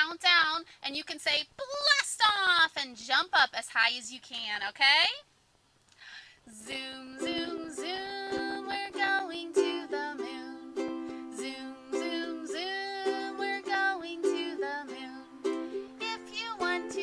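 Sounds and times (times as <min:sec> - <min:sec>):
woman singing: 0:06.5 - 0:17.0
ukulele strumming chords: 0:06.6 - 0:17.0.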